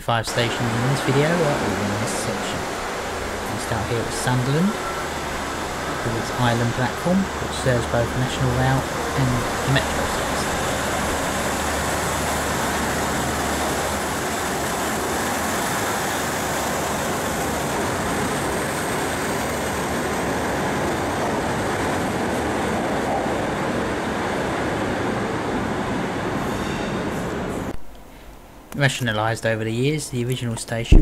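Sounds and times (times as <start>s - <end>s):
train rumbling through station: 0.0s - 31.0s.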